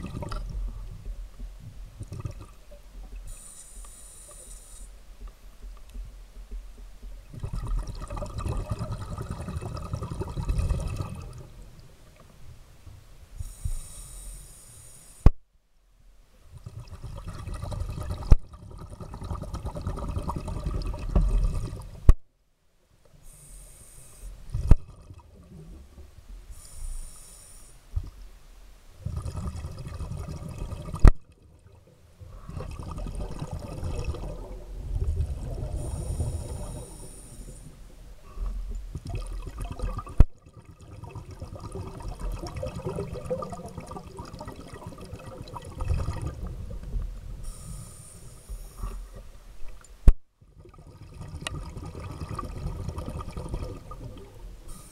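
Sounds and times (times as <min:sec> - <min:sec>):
underwater bubbling: 0:00.0 - 0:12.6, 0:16.5 - 0:22.2, 0:23.3 - 0:28.3, 0:29.0 - 0:54.9
diver breathing underwater: 0:03.3 - 0:05.0, 0:13.4 - 0:15.3, 0:23.2 - 0:24.4, 0:26.5 - 0:27.8, 0:32.2 - 0:38.7, 0:47.4 - 0:49.3, 0:54.6 - 0:54.9.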